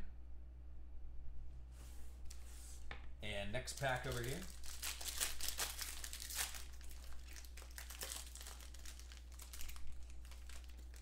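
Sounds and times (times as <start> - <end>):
foil wrapper crinkling and tearing: 3.6 - 11.0.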